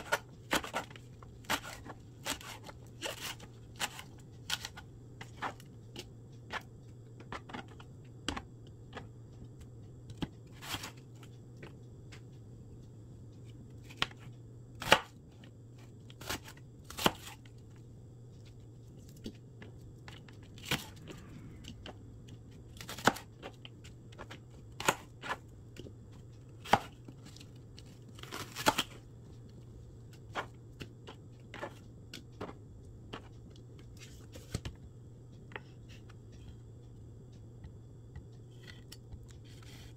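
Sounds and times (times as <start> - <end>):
knife chopping on plastic board: 0.0 - 9.0, 14.8 - 15.1, 16.2 - 17.4, 22.8 - 25.4, 26.6 - 27.4, 28.2 - 29.0, 30.3 - 33.3
steady low hum: 0.0 - 39.9.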